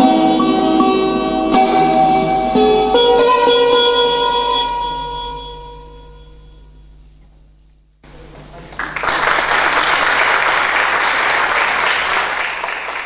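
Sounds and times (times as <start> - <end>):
music: 0.0 - 6.8
audience applauding: 8.2 - 13.0.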